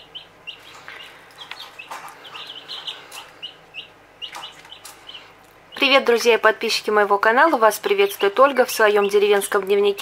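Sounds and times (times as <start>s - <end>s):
chicks peeping: 0.0s - 10.0s.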